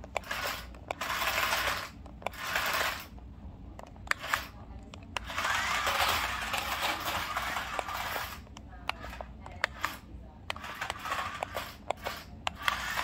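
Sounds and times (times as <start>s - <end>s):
toy car electric motors whirring: 0.0s - 3.2s, 4.0s - 4.6s, 5.2s - 13.0s.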